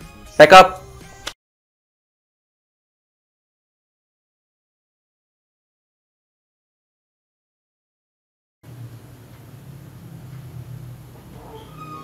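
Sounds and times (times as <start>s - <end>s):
steady low hum: 8.6s - 11.6s.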